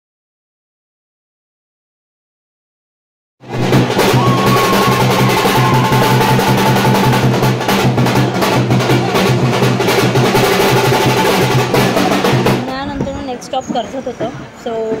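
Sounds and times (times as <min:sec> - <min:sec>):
sharp clacking percussion: 0:03.5 - 0:13.0
drummers playing fast rhythm: 0:03.5 - 0:14.3.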